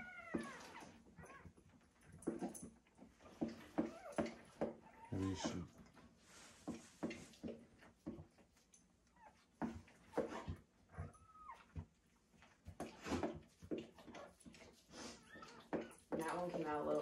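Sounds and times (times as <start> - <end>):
puppy whimpering: 0.0 - 1.6, 3.8 - 5.7, 10.9 - 11.8, 15.0 - 16.0.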